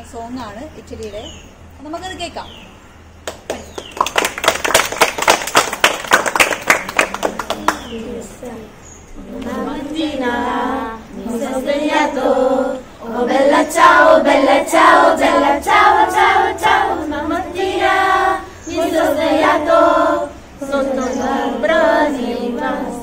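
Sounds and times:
girls singing unaccompanied: 7.4 - 23.0.

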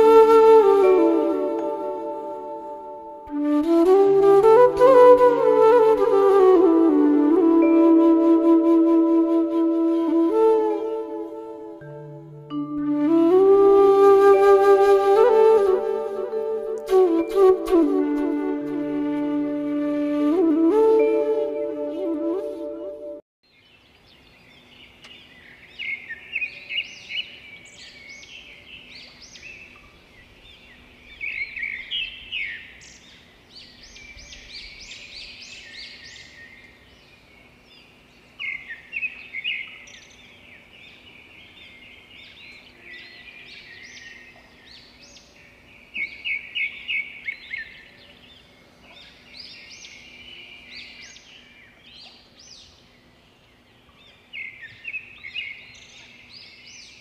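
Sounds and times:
wild birds chirping: 23.5 - 57.0.

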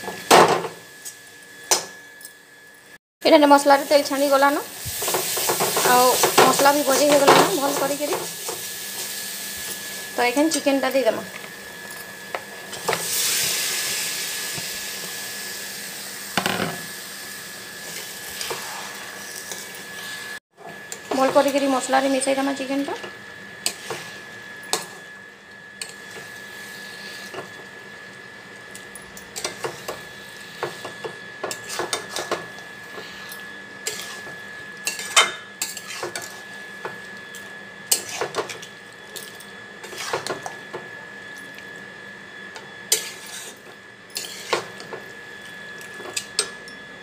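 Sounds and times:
metal spatula scraping a pan: 33.0 - 36.5, 37.9 - 38.4, 42.9 - 43.6, 44.2 - 44.8.

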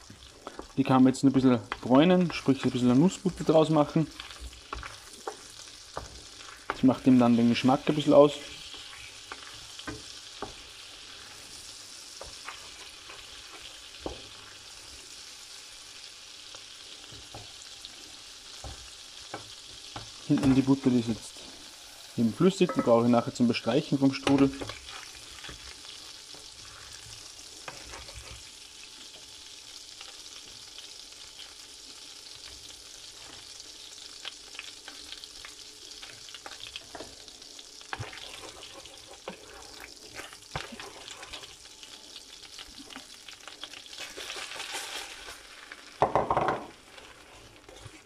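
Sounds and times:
wooden spoon stirring and tapping: 0.0 - 10.8, 18.6 - 20.8, 37.9 - 41.6
butter sizzling in a frying pan: 0.0 - 48.0.

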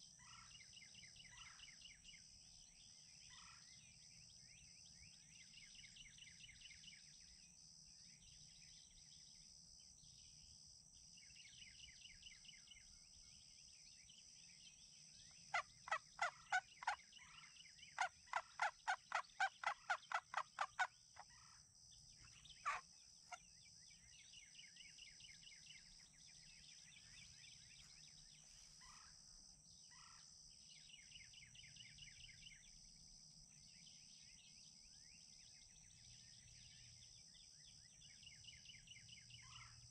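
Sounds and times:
songbirds trilling: 0.0 - 39.9
turkey yelps: 15.9 - 17.0, 18.0 - 21.6, 22.6 - 22.8.

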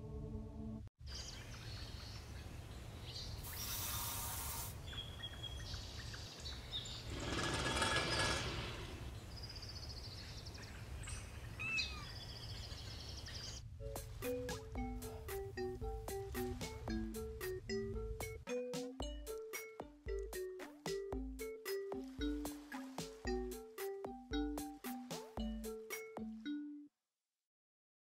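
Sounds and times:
brief hiss: 3.4 - 4.8
bird chirps: 4.8 - 13.6.

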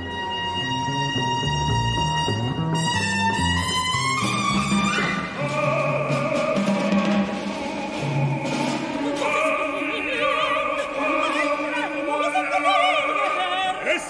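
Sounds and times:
sustained orchestral chords: 0.0 - 13.8
soprano singing with vibrato: 5.2 - 14.0.

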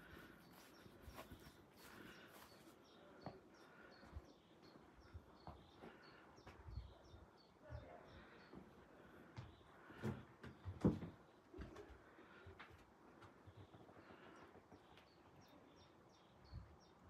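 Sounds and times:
small bird chirping: 0.0 - 8.6.

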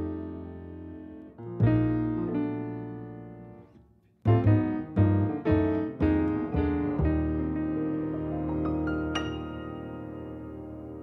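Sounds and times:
piano chords: 0.0 - 11.0.

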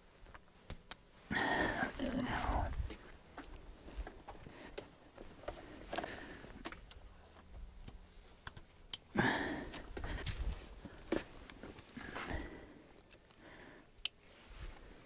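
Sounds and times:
cable connectors clicking and rustling: 0.0 - 1.1, 2.9 - 12.4, 13.0 - 14.3
short breathy vocal sound: 1.3 - 2.9.

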